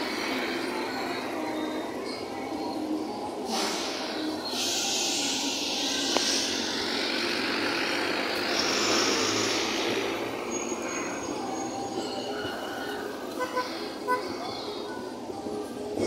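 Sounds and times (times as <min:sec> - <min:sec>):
car driving past: 0:06.1 - 0:10.8.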